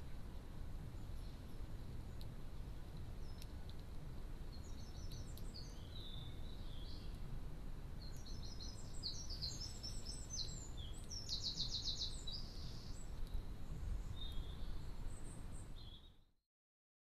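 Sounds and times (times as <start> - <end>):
low outdoor rumble: 0.0 - 15.9
songbird twittering: 4.5 - 7.2, 8.0 - 16.3.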